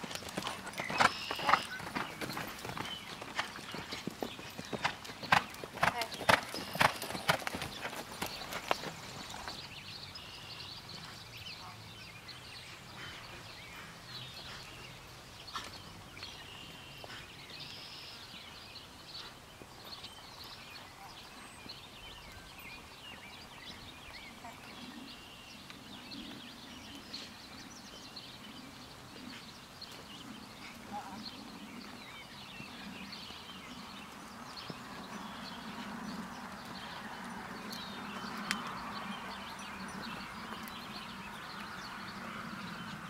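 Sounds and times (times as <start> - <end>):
horse hoofbeats on dirt: 0.0 - 9.8, 32.5 - 42.3
birds chirping: 0.0 - 43.0.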